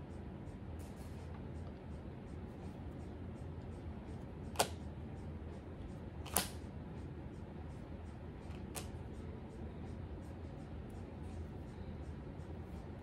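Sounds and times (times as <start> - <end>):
low steady hum: 0.0 - 13.0
cards snapping: 4.6 - 4.8, 6.2 - 6.6, 8.5 - 9.0.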